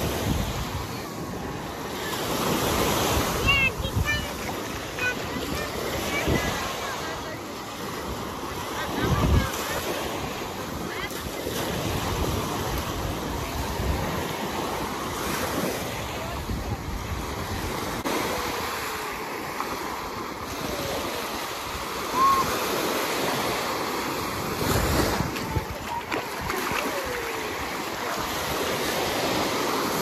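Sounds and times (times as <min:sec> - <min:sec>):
small waves breaking on shore: 0:00.0 - 0:30.0
wind buffeting microphone: 0:08.0 - 0:18.6, 0:24.2 - 0:29.4
high cry: 0:22.1 - 0:22.6.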